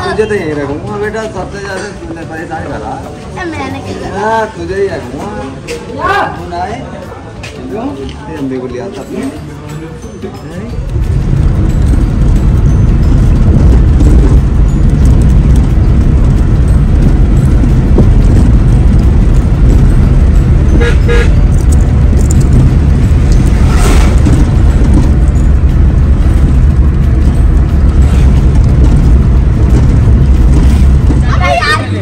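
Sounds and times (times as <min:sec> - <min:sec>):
car cabin road rumble: 0:10.8 - 0:32.0
vehicle horn toot: 0:20.7 - 0:21.5.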